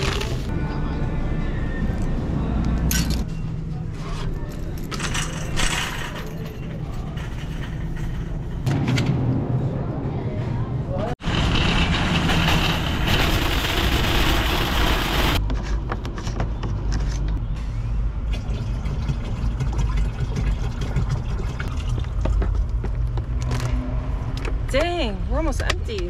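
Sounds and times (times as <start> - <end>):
shopping cart rattling over concrete: 11.2 - 15.4.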